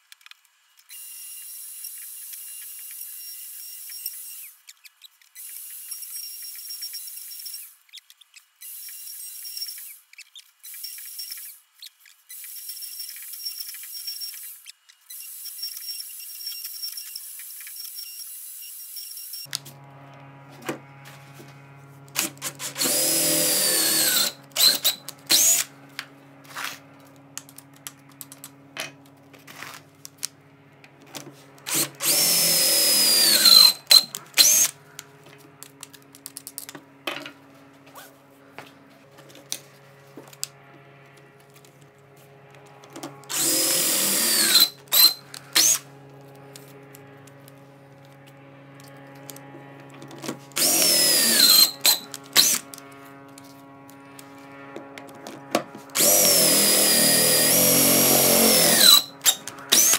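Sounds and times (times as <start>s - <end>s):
small clicks and clatter: 0.0s - 0.9s, 3.9s - 18.2s, 25.9s - 31.3s, 44.9s - 50.4s, 51.4s - 56.0s
cordless drill boring into wood: 0.8s - 19.6s, 22.2s - 25.7s, 31.6s - 34.8s, 43.3s - 45.8s, 50.6s - 52.7s, 56.0s - 59.9s.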